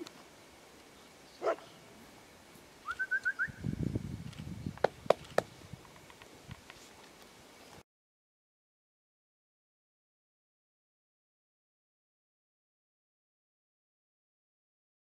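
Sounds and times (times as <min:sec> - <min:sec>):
dog bark: 0:01.4 - 0:01.7
short high chirps: 0:02.8 - 0:03.7
sharp clicks: 0:04.2 - 0:06.8.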